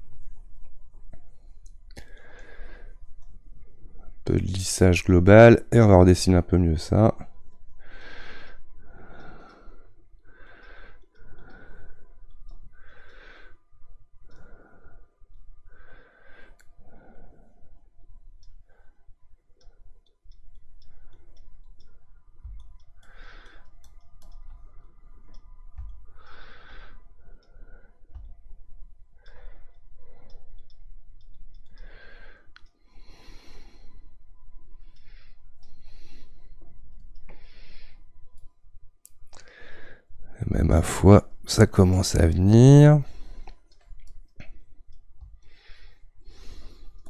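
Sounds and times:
soft breathy noises: 0.0s - 47.0s
computer mouse clicking: 19.6s - 28.4s, 29.2s - 34.0s, 34.8s - 39.5s, 43.2s - 47.0s.

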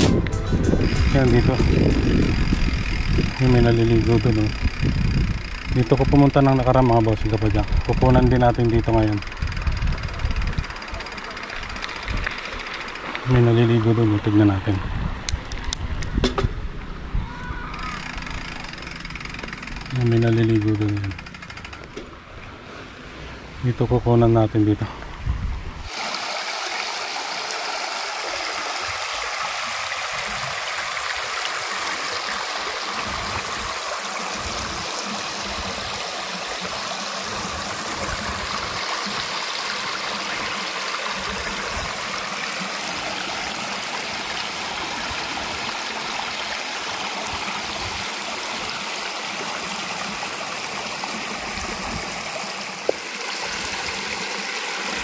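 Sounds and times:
stream water flowing: 0.0s - 16.0s, 16.8s - 55.0s.

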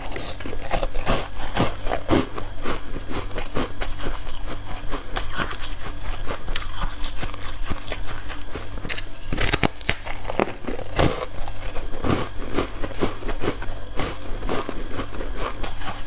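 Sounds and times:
ice crunching while chewed: 0.0s - 16.0s.

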